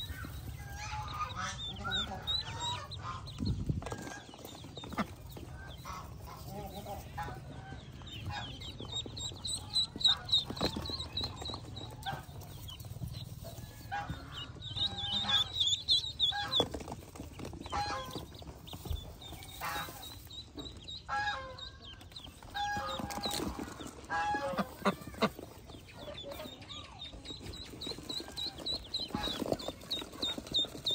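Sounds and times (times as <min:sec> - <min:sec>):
ducklings peeping: 0:00.0 - 0:30.9
duck calling: 0:14.0 - 0:16.6.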